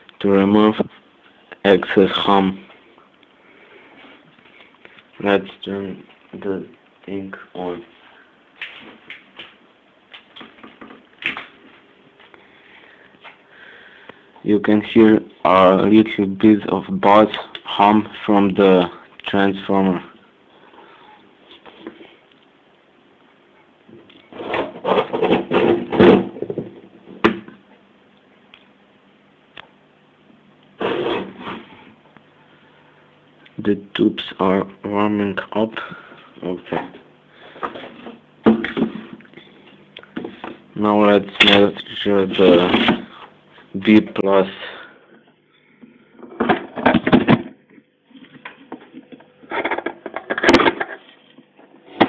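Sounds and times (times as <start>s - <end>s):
faint transformer hum: 0.0s - 52.0s
clattering and rustling handling: 45.8s - 52.0s.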